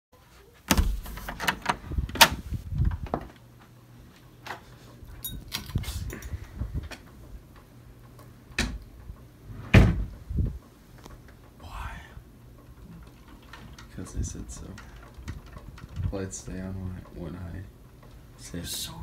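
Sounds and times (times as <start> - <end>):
door knocks and clicks: 0.7 - 2.4, 8.6 - 8.8, 9.7 - 10.2.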